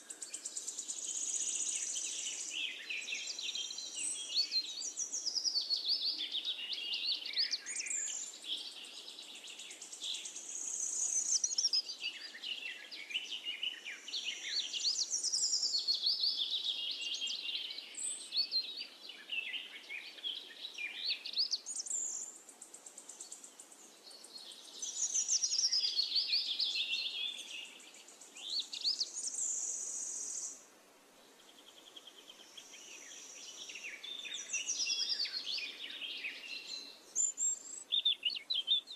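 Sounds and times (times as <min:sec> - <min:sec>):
birds chirping and singing: 0:00.0 - 0:30.6, 0:31.3 - 0:38.9.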